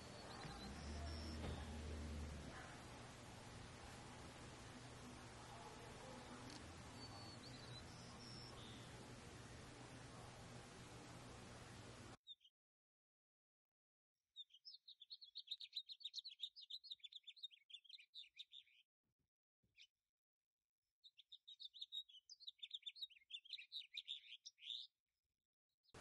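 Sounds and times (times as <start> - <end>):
songbirds twittering: 0.0 - 12.4, 14.4 - 18.8, 21.1 - 24.9.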